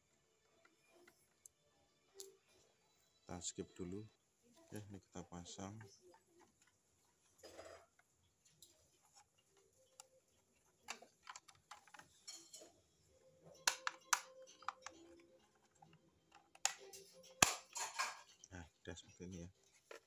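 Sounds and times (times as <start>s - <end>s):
plastic clicks and taps: 10.8s - 12.1s, 13.6s - 18.1s.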